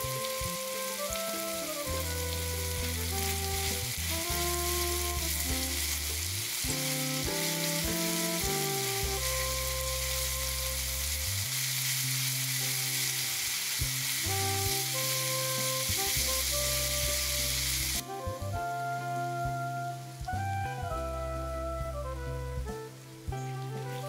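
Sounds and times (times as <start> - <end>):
meat and onion sizzling in a pan: 0.0 - 18.1
soft background music: 0.0 - 24.0.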